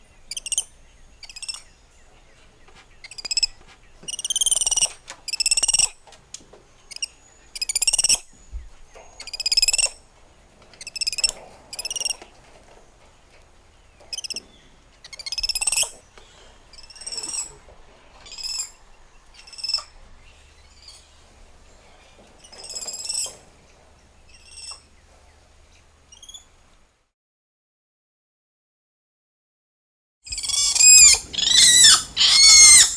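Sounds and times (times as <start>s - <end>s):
monkeys whinny-like calls: 30.3s - 32.9s.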